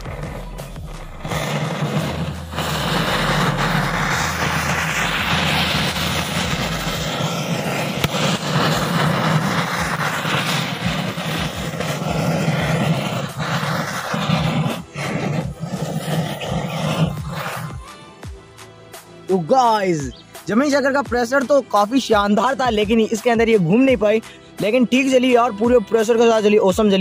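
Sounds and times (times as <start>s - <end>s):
firework hissing rush of sparks: 0.0s - 18.2s.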